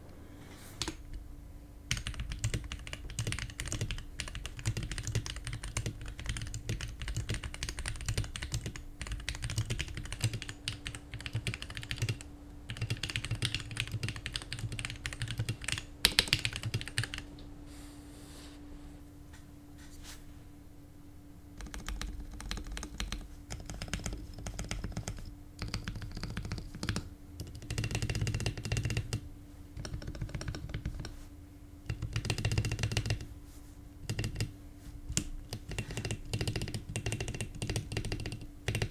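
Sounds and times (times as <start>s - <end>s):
mechanical keyboard typing: 1.9s - 17.3s, 21.6s - 29.2s, 29.8s - 31.1s, 31.8s - 33.3s, 34.0s - 34.5s, 35.1s - 38.9s.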